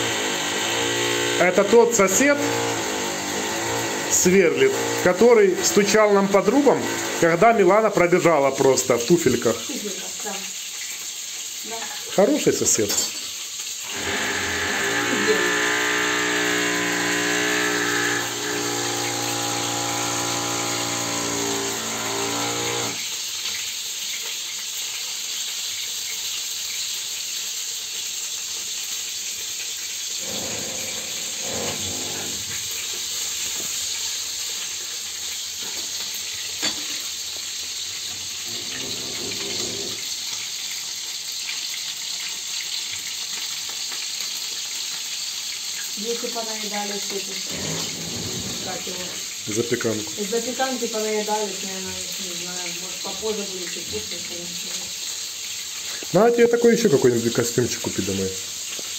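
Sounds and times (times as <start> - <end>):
electric drill whining: 0.0 - 5.9, 6.5 - 7.4, 13.9 - 23.0, 30.2 - 32.6, 38.5 - 40.0, 47.5 - 49.2
cutlets frying in a pan: 0.0 - 20.8, 22.6 - 30.3, 32.4 - 58.9.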